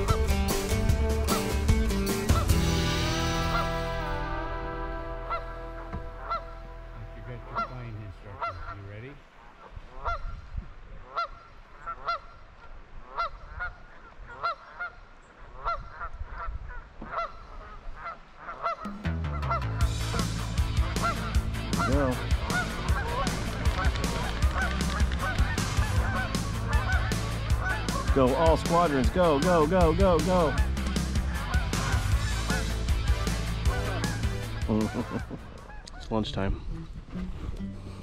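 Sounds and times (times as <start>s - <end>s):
music with bass and drumbeat: 0.0s - 7.7s, 18.9s - 35.8s
geese honking: 0.0s - 10.4s, 11.0s - 38.0s.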